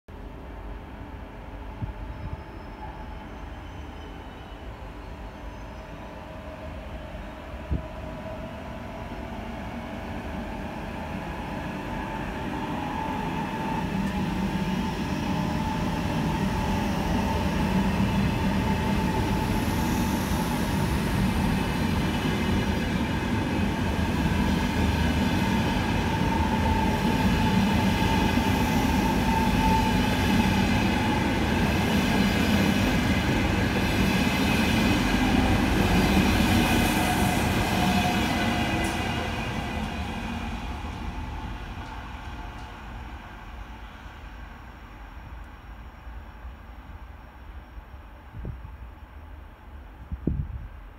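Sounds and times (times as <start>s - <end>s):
train wheels rumbling on rail: 0.2s - 50.9s.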